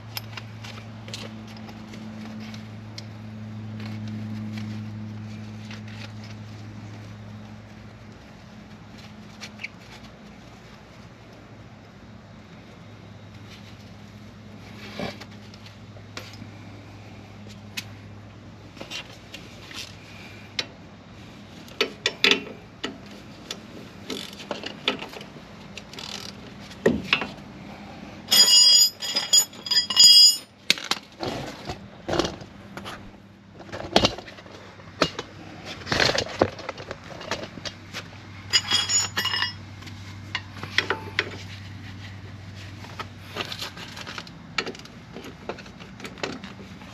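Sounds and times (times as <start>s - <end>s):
tools clinking on metal: 28.3s - 30.5s, 38.5s - 39.6s.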